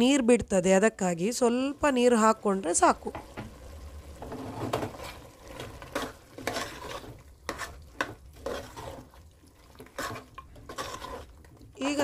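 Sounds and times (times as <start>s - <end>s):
meat sizzling: 1.5s - 12.0s
spoon scraping a pot: 4.2s - 12.0s.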